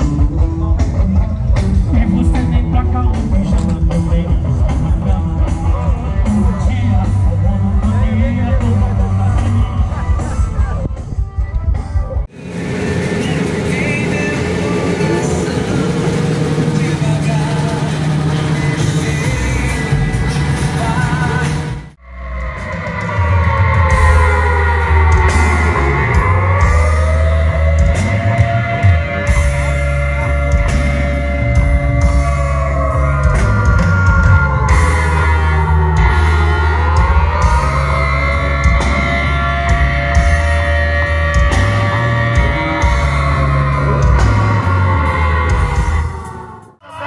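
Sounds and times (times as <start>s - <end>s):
rock music: 0.0s - 47.0s.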